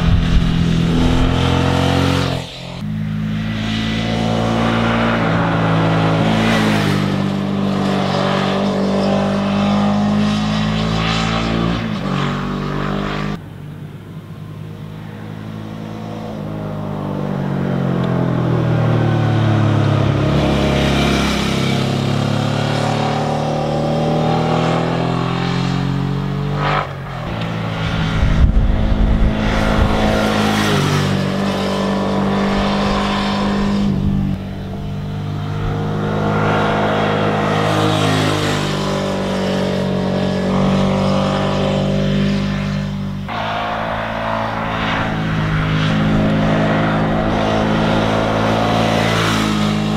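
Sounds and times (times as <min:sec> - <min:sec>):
motorcycle engine passing by: 0:27.7 - 0:43.0.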